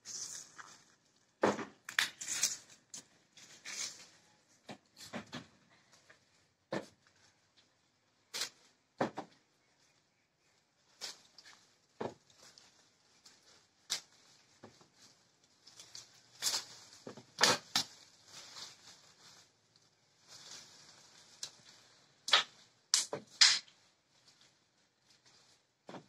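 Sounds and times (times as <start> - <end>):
leaves and branches rustling: 2.1 - 5.2, 5.8 - 22.9, 23.7 - 26.0
oranges snapping off branches: 22.3 - 23.8.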